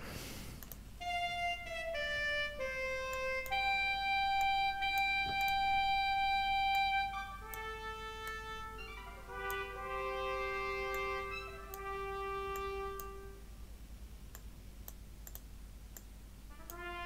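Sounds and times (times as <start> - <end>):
faint mouse clicks: 0.6 - 0.8, 14.3 - 16.1
sampled saxophone notes: 1.0 - 13.5, 16.5 - 17.0.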